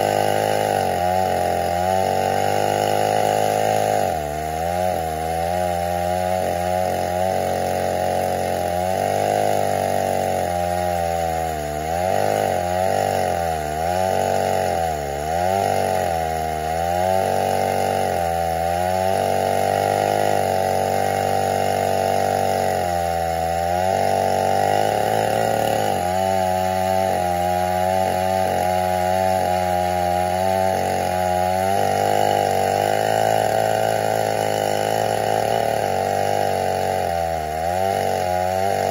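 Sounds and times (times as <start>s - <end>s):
chainsaw cutting wood: 0.0s - 38.9s.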